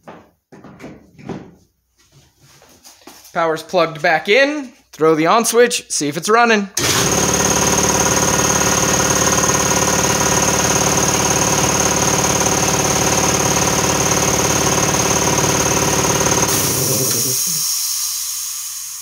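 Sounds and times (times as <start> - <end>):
air compressor running: 6.8 - 19.0
motor winding down: 6.8 - 19.0
air hissing out: 16.5 - 19.0.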